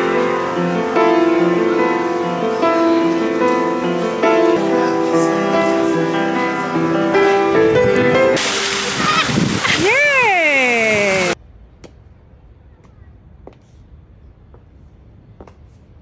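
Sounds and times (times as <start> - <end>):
upright piano melody: 0.0 - 11.4.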